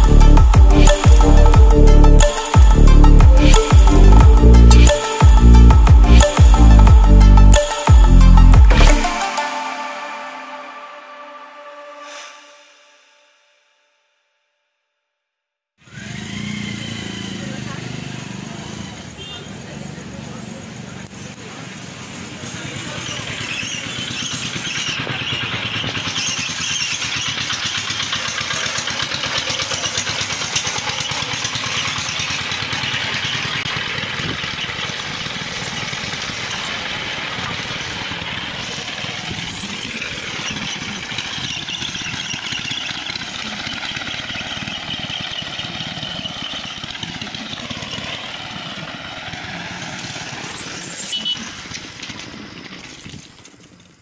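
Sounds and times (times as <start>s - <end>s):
motor traffic: 0.0s - 9.6s, 15.8s - 54.0s
engine pitch rising and falling: 0.0s - 12.9s, 15.8s - 54.0s
bicycle road rolling noise: 15.8s - 54.0s.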